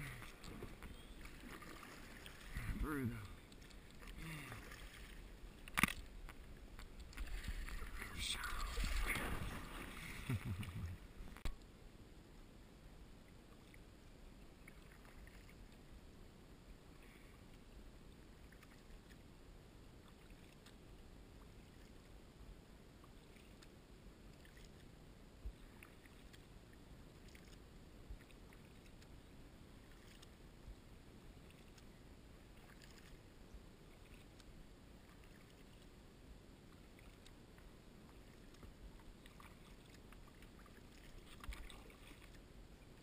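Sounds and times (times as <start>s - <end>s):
paddle dipping in water: 0.0s - 11.6s, 14.4s - 15.8s, 24.3s - 24.9s, 25.5s - 29.1s, 32.5s - 33.3s, 33.9s - 36.0s, 36.6s - 43.0s.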